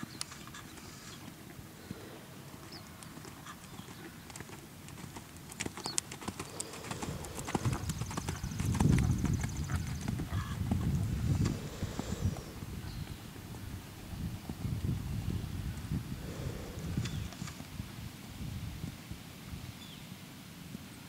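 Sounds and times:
horse hoofbeats on sand: 3.1s - 11.1s.

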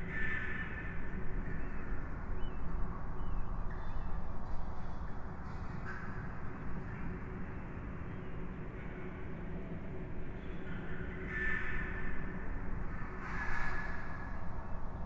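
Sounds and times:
caw-like bird calls: 0.0s - 1.6s, 10.7s - 12.3s, 12.9s - 14.4s.

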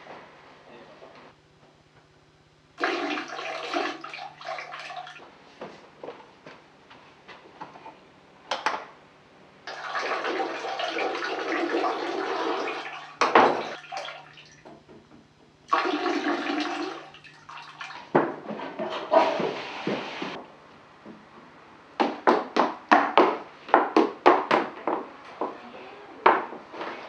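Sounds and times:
toilet flushing: 2.8s - 5.2s, 9.7s - 14.6s, 15.7s - 18.1s, 18.9s - 20.4s.

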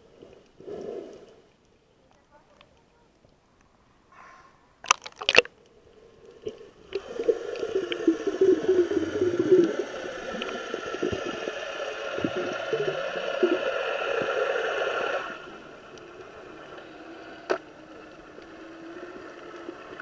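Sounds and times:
underwater bubbling: 0.0s - 1.9s, 4.8s - 20.0s
water splash: 4.8s - 5.5s
boat motor heard underwater: 6.4s - 20.0s.

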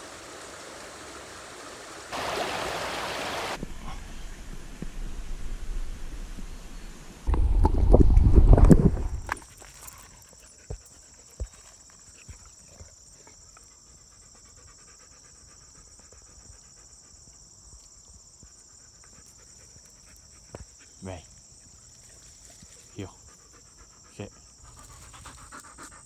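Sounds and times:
insects droning: 8.9s - 26.0s.

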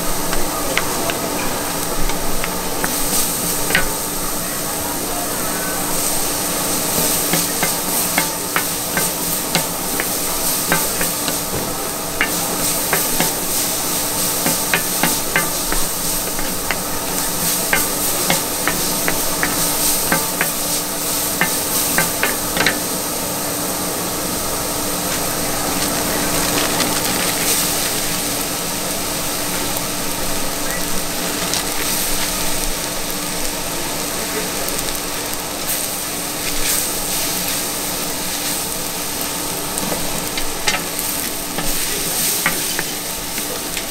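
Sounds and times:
food sizzling on griddle: 0.0s - 43.9s
metal spatulas scraping: 12.2s - 20.7s.

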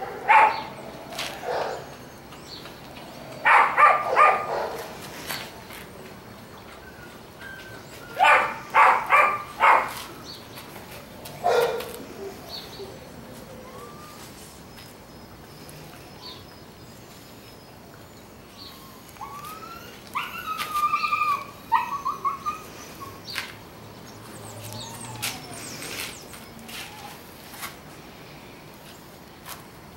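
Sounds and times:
puppy barking: 0.0s - 0.7s, 1.4s - 1.8s, 3.4s - 4.9s, 8.2s - 10.0s, 11.4s - 12.0s
puppy yelping and whining: 18.8s - 23.3s, 24.7s - 25.7s.

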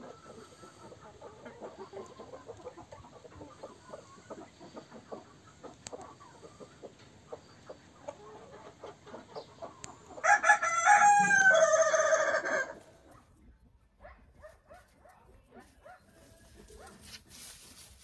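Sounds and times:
chickens clucking softly: 0.0s - 14.5s
rooster crowing: 10.2s - 12.8s.

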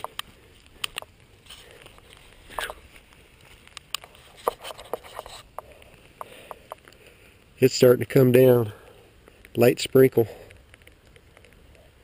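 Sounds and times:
raindrops tapping: 0.0s - 7.1s
faint steady hiss: 0.0s - 12.0s.

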